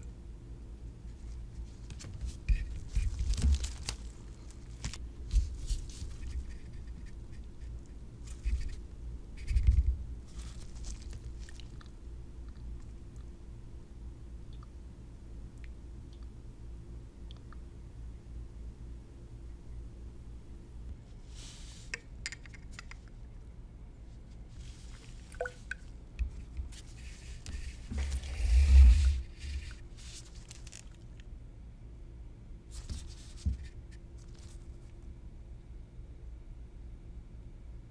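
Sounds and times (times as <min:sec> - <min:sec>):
rustling handling noise: 0:01.1 - 0:12.0, 0:24.0 - 0:31.3, 0:32.7 - 0:35.0.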